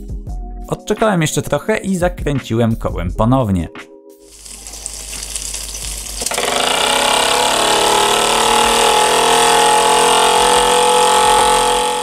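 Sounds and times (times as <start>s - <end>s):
steam engine rapid mechanical beat: 5.8s - 11.8s.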